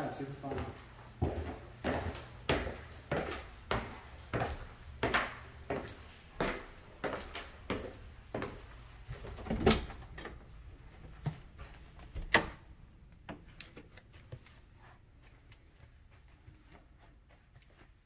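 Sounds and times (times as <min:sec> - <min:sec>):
footsteps climbing stairs: 0:00.0 - 0:18.0
door opening clicks and knocks: 0:09.2 - 0:10.5, 0:12.0 - 0:12.7.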